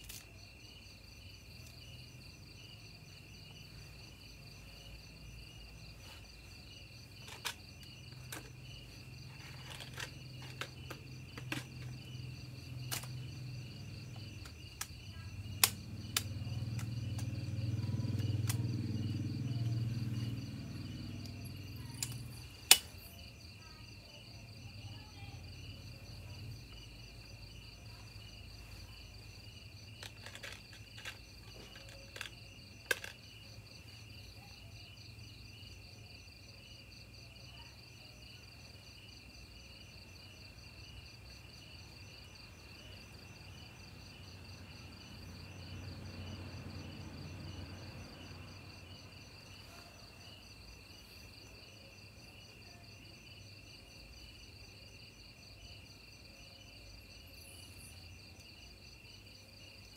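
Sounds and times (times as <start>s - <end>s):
crickets chirping: 0.0s - 59.9s
sharp clicks: 15.6s - 17.3s, 22.0s - 23.1s.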